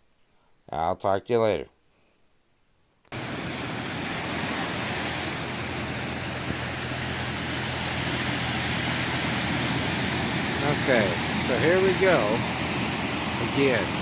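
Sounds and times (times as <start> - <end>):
low steady hum: 0.0 - 14.0
ocean surf: 3.1 - 14.0
wind: 3.1 - 14.0.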